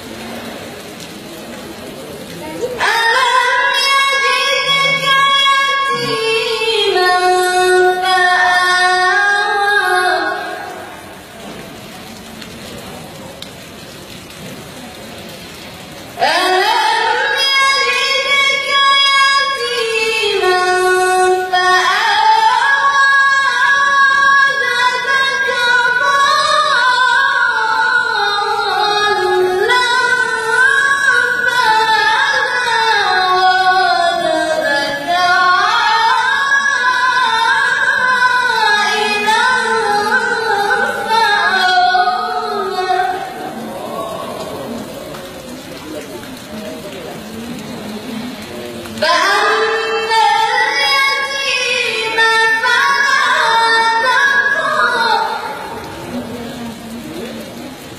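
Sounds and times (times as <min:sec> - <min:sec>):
woman reciting melodically: 0:02.4 - 0:11.4, 0:16.2 - 0:44.6, 0:49.0 - 0:56.9.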